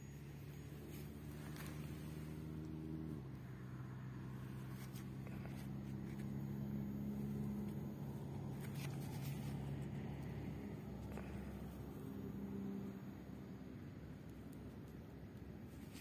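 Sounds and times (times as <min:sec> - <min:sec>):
low motor hum: 0:00.0 - 0:16.0.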